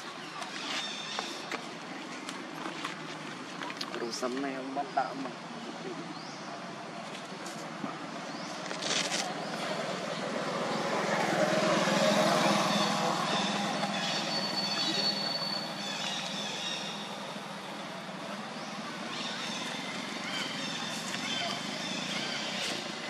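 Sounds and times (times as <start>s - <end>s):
motor vehicle passing: 7.0s - 23.0s.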